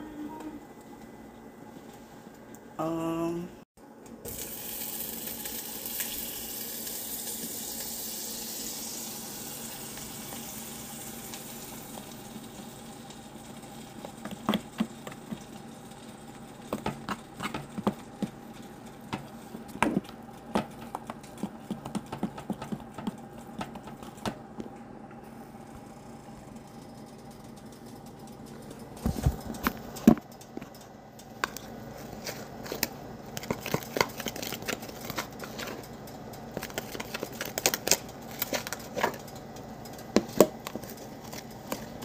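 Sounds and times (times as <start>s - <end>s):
tap water running: 4.2s - 18.5s.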